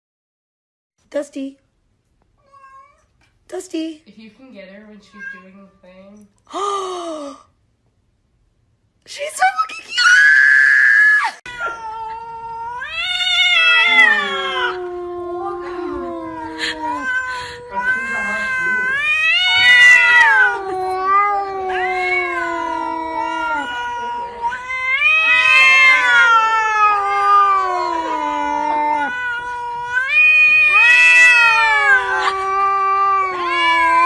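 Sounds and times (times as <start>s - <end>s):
cat yowling: 10.0s - 34.0s.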